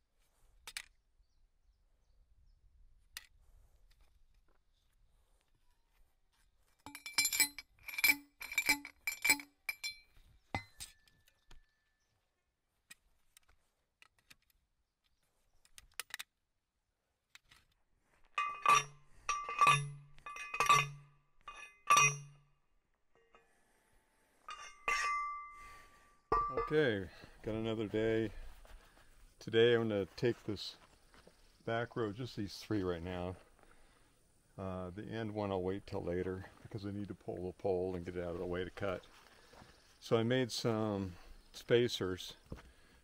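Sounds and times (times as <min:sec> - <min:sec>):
post driver clanking on stake: 0:06.9 - 0:10.0, 0:18.4 - 0:22.4, 0:24.5 - 0:25.6, 0:26.3 - 0:26.8.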